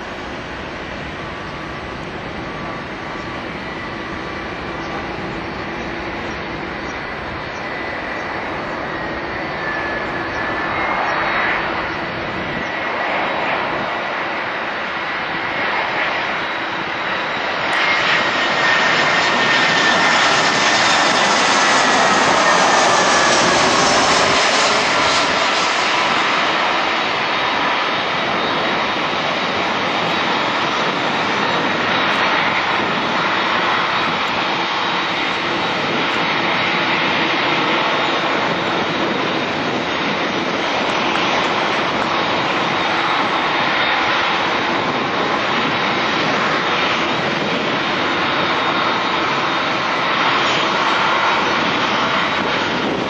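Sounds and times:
jet engine roar: 0.0s - 53.0s.

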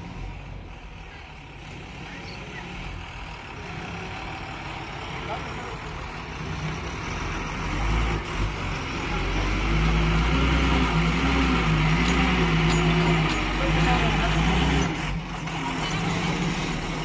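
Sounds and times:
lorry diesel engine running: 0.0s - 17.0s.

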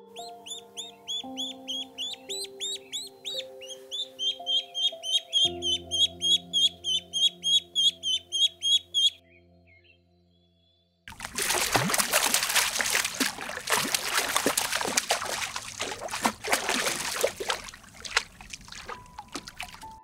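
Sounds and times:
fish splashing water: 11.1s - 20.0s.

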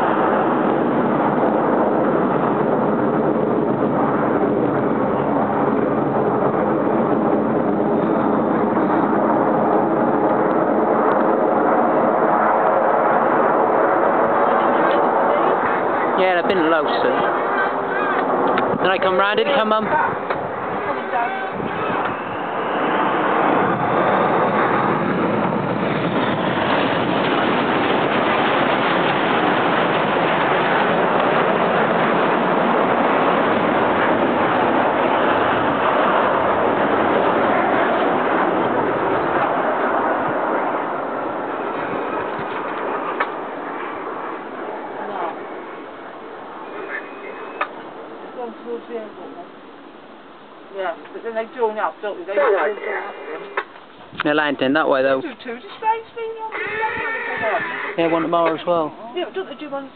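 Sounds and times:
jet engines rushing overhead: 0.0s - 59.9s.

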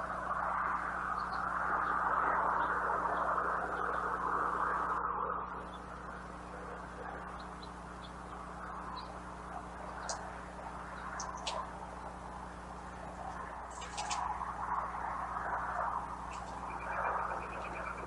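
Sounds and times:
faint high bird chirps: 5.5s - 12.2s, 16.1s - 18.0s.

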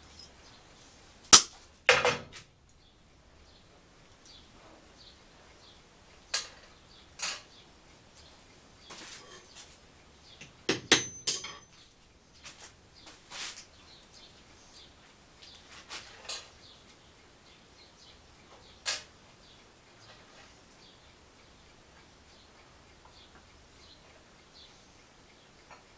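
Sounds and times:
metal tools clinking on workbench: 0.0s - 0.4s, 10.8s - 11.8s
hammer striking metal: 1.4s - 2.2s, 10.7s - 11.7s.

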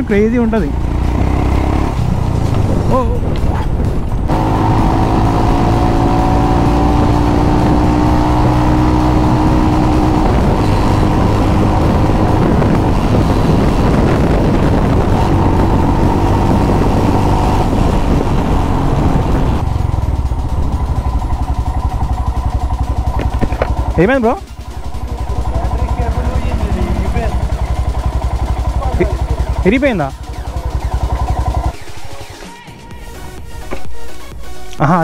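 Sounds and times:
wind rushing over microphone: 0.0s - 24.1s
motorcycle engine running: 0.0s - 32.4s.

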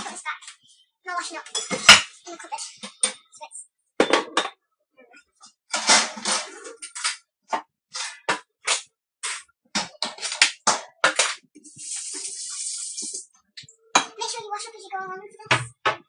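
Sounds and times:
dishes and utensils clattering: 1.3s - 3.3s, 4.0s - 4.6s, 5.3s - 7.2s, 8.0s - 11.5s, 13.0s - 14.4s.

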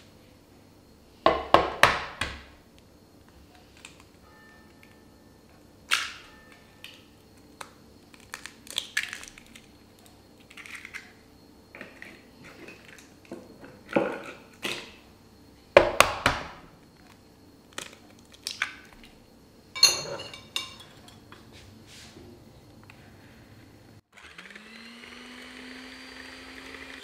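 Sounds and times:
eggshells cracking: 7.6s - 9.7s.

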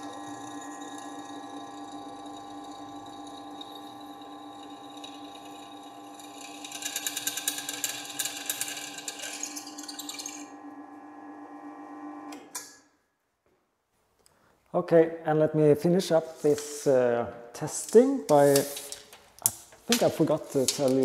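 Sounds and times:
drill bit cutting steel: 0.0s - 10.5s
bench drill motor hum: 0.0s - 12.3s.

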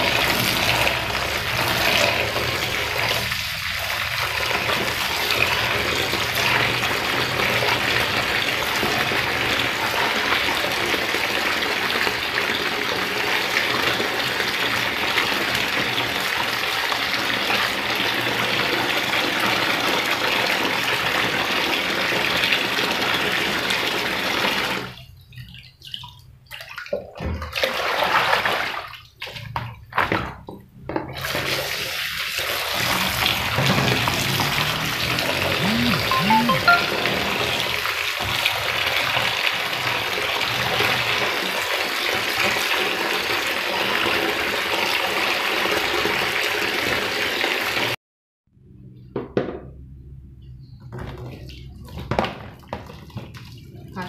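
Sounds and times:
tap water splashing into sink: 25.8s - 31.9s, 50.9s - 53.8s.

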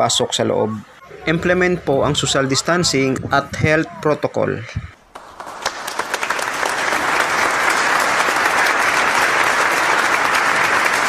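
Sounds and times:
crowd applause: 5.0s - 11.0s.

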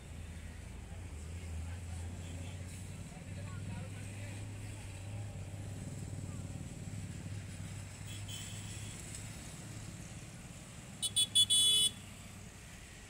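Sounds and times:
road traffic rumble: 0.0s - 13.0s
high-pitched vehicle horn honking: 11.0s - 12.0s.

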